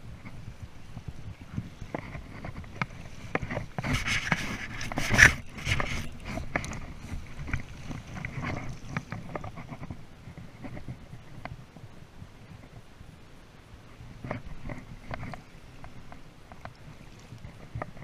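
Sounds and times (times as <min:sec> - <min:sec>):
water splashing: 0:01.4 - 0:10.0.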